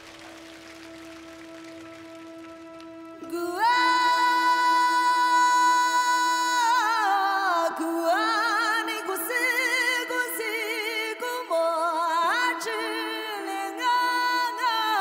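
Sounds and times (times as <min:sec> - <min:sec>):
woman singing wordless vocals: 0:03.2 - 0:15.0.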